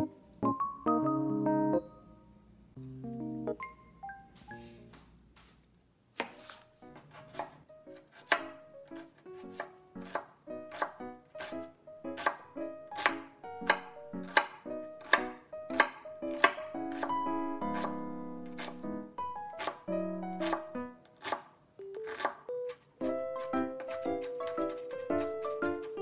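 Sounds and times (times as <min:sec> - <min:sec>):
knife chopping on wooden board: 0:06.2 - 0:11.6, 0:12.2 - 0:18.8, 0:19.6 - 0:19.8, 0:20.4 - 0:26.0.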